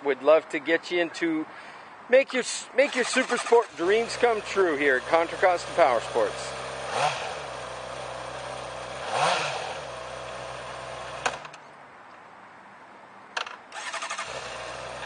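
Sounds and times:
starter cranking: 2.8s - 7.4s, 13.8s - 15.0s
motorcycle engine idling: 3.0s - 11.2s.

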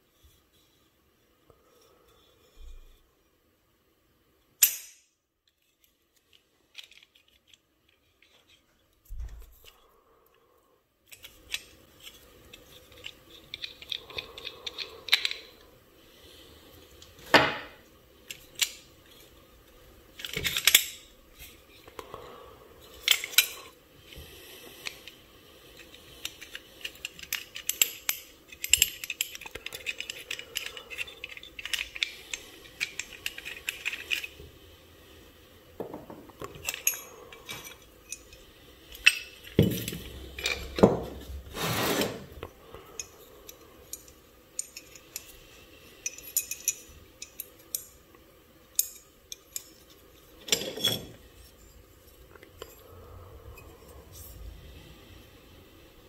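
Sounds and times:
metal parts clinking and scraping: 5.6s - 8.7s, 11.0s - 15.7s, 17.0s - 23.8s, 25.7s - 34.4s, 35.8s - 48.1s, 48.7s - 54.5s.

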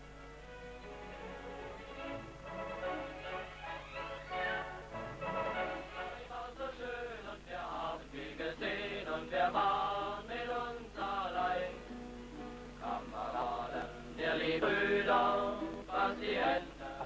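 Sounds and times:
music: 0.0s - 17.0s
voices chanting together: 4.3s - 11.9s, 12.8s - 17.0s.

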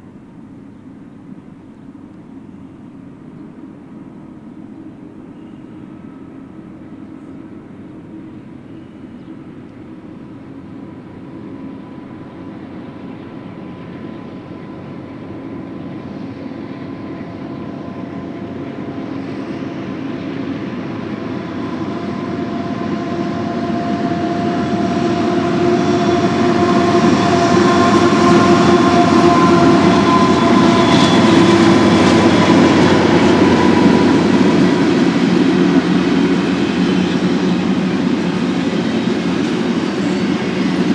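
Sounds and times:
diesel locomotives rumbling: 0.0s - 40.9s.

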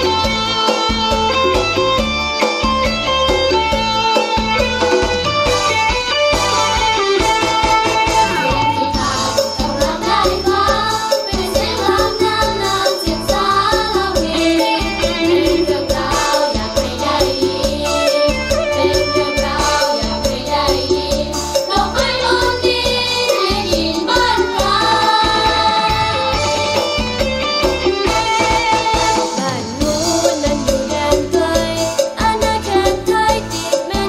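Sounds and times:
band with drums: 0.0s - 34.0s
girls singing backing vocals: 8.5s - 18.1s, 18.7s - 26.4s
girl singing lead vocals: 29.3s - 34.0s.

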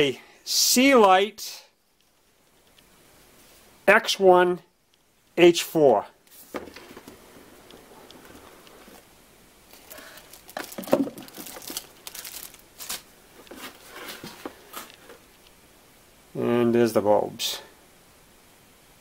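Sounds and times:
plastic bag crinkling: 9.6s - 15.0s.

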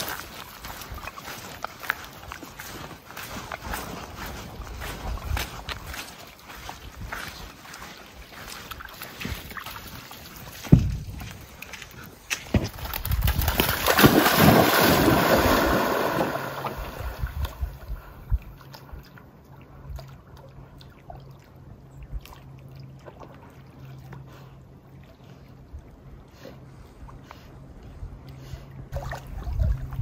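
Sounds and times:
water sloshing: 5.7s - 24.3s
wind gusting on microphone: 12.5s - 18.6s.

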